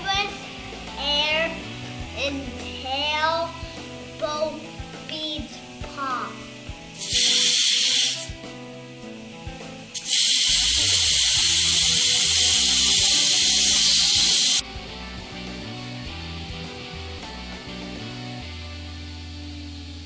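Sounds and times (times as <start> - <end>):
compressed air hissing: 1.6 - 14.6.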